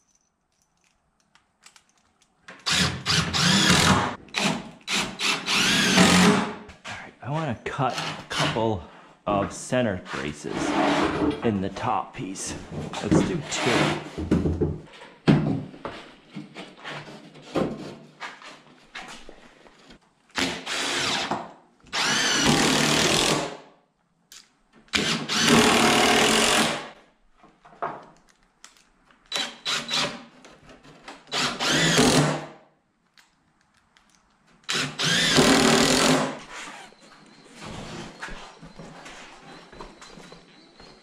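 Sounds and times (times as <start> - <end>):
power drill driving screws into wood: 2.6 - 6.6, 20.3 - 23.6, 24.9 - 27.0, 29.3 - 30.3, 31.3 - 32.5, 34.7 - 37.0.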